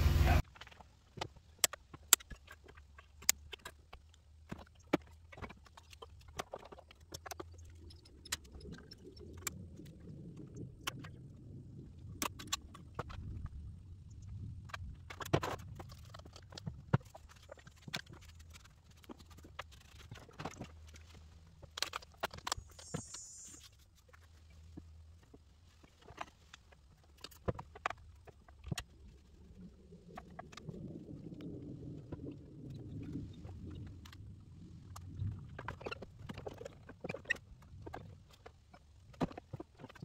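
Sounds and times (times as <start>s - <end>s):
low rumble: 0.0s - 0.4s
short hiss: 22.6s - 23.7s.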